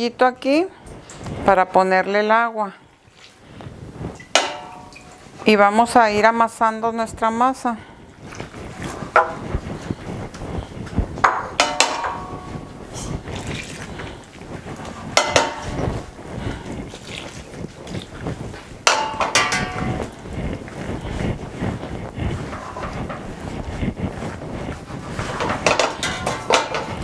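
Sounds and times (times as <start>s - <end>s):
hands kneading dough: 3.1s - 27.0s
knocks against glass bowl: 4.4s - 5.0s, 11.2s - 12.4s, 15.2s - 15.8s.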